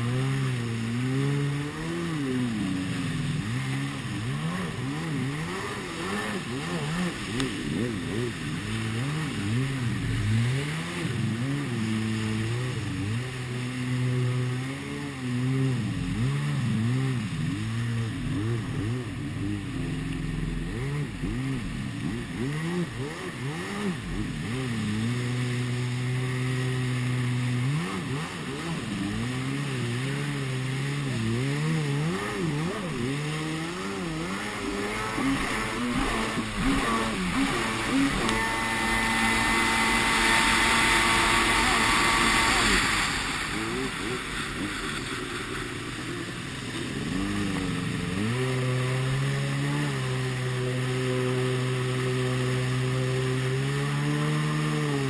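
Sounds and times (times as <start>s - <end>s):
jet ski engine revving: 0.0s - 55.0s
rushing water spray: 0.0s - 55.0s.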